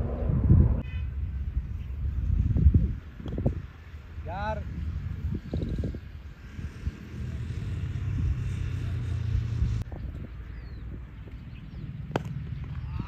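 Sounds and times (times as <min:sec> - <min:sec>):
low rumble: 0:00.0 - 0:02.9
sharp crack: 0:12.1 - 0:12.9.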